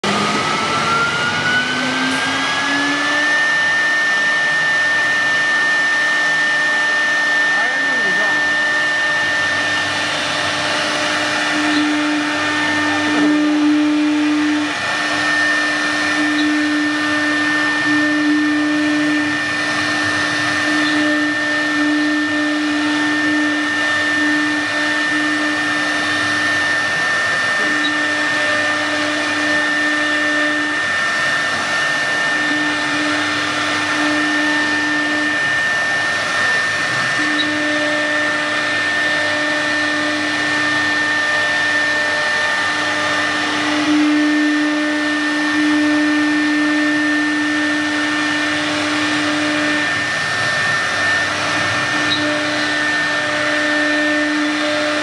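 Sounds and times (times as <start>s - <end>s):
router spindle whining: 0.0s - 55.0s.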